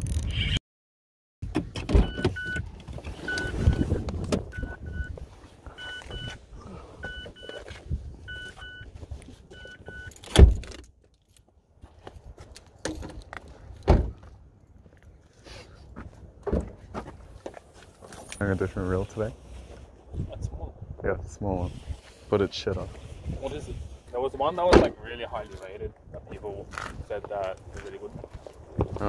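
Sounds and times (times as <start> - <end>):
car door warning chime beeps: 2.0 - 2.6, 3.2 - 5.1, 7.0 - 7.6.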